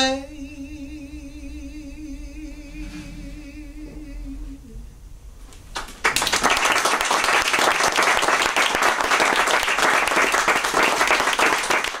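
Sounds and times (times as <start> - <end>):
audience clapping: 5.7 - 12.0.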